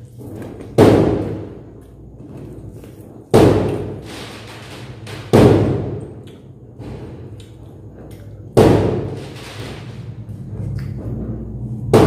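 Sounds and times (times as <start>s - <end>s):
heavy thuds: 0.0s - 12.0s.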